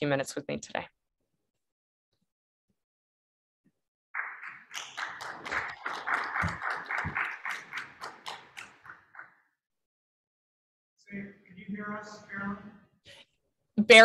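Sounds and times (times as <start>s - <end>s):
audience clapping: 4.2s - 9.4s.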